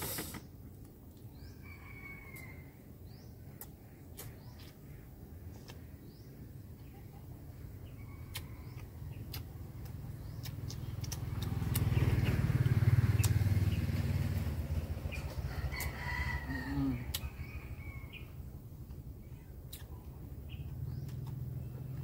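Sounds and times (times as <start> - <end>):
rooster crowing: 1.6 - 2.8, 15.4 - 18.2.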